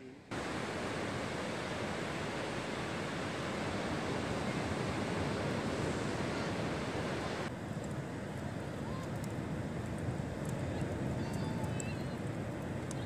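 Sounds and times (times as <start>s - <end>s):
wind: 0.0s - 13.0s
surf rushing: 0.3s - 7.5s.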